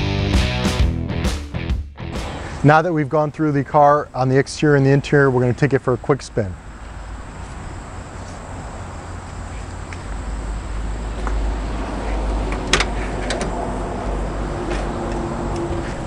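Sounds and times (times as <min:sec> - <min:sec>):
low outdoor rumble: 0:02.2 - 0:16.0.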